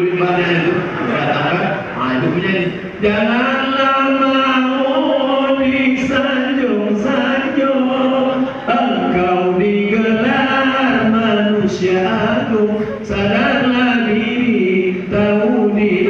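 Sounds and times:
man chanting into microphone: 0:00.0 - 0:16.0.

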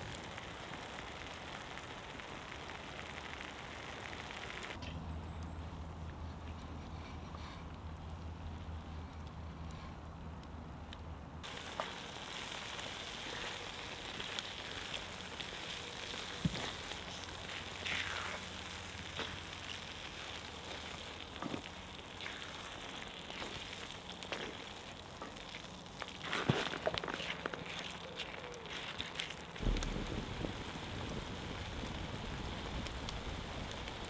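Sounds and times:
sauce sizzling in a skillet: 0:11.4 - 0:34.0
wooden spatula stirring and scraping: 0:15.5 - 0:29.6.

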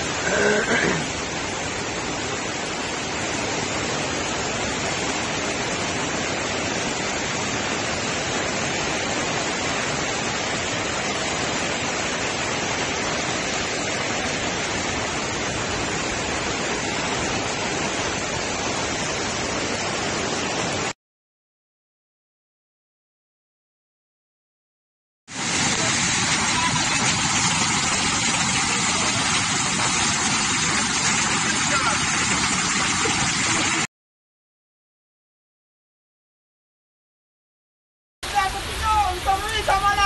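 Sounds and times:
floodwater rushing: 0:00.0 - 0:20.9, 0:25.3 - 0:33.9, 0:38.2 - 0:40.0
heavy rain: 0:00.0 - 0:21.0, 0:25.3 - 0:33.9, 0:38.2 - 0:40.0.

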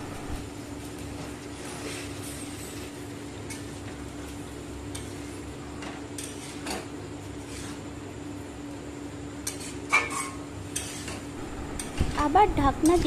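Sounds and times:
low hum: 0:00.0 - 0:00.5, 0:11.3 - 0:13.0.

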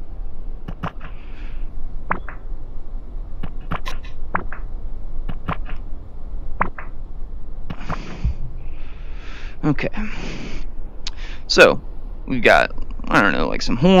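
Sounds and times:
steady low hum: 0:00.0 - 0:14.0
short breathy hiss: 0:07.7 - 0:11.5.

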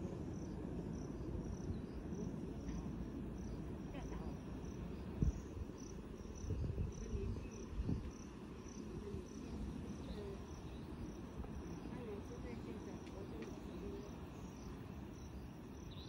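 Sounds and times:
insect chirping: 0:00.0 - 0:16.0.

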